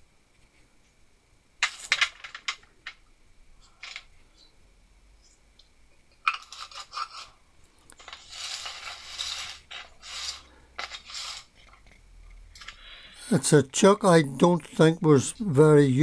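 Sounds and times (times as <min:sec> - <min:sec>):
metal scraping on workbench: 0:08.0 - 0:11.9.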